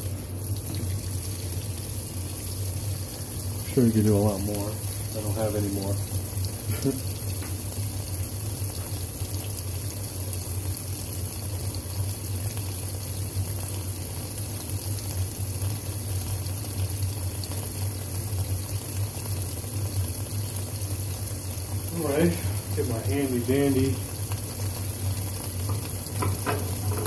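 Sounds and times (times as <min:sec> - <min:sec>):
water pouring into washing machine: 0:00.0 - 0:27.0.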